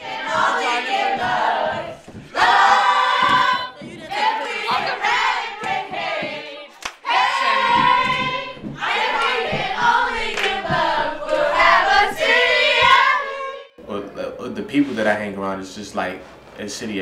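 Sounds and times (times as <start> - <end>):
young voices singing and chanting: 0.0 - 13.8
hand claps: 5.6 - 11.4.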